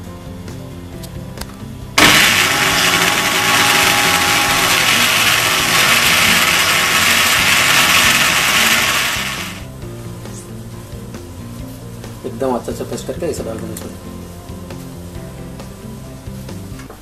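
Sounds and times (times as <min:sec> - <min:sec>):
mixer grinder motor running: 0:02.0 - 0:09.7.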